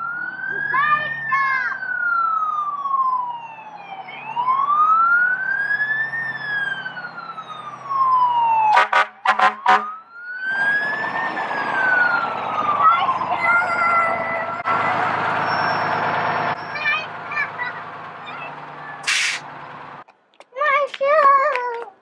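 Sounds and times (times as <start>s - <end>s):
fire engine siren wailing: 0.0s - 19.1s
short sharp horn blasts: 8.7s - 9.9s
truck engine running: 10.8s - 20.1s.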